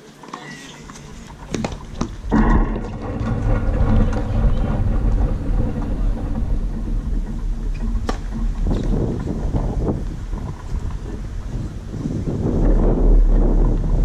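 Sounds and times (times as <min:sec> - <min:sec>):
low engine rumble: 0:00.8 - 0:14.0.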